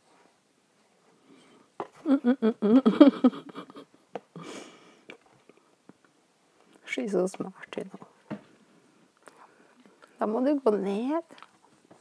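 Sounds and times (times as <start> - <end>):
woman murmuring: 2.0 - 3.9.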